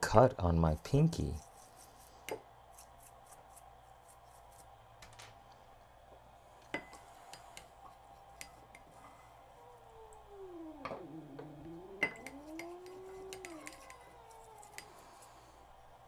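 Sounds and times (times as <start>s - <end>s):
brush scrubbing in glass bowl: 1.1s - 4.7s, 12.1s - 14.9s
low tone sliding down: 9.6s - 14.9s.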